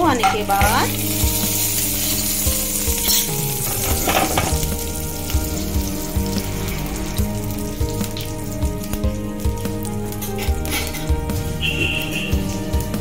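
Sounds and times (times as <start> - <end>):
spices sizzling in hot oil: 0.0 - 13.0.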